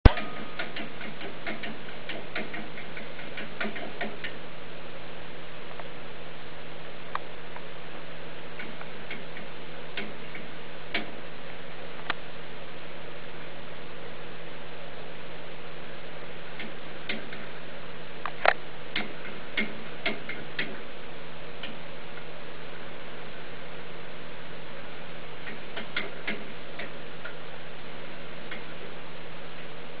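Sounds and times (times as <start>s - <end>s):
sharp clicks: 0.0s - 4.4s, 18.2s - 20.8s, 25.4s - 27.4s
steady ticking: 0.0s - 4.4s, 18.2s - 20.9s, 25.4s - 27.4s
steady hum and hiss: 0.0s - 30.0s.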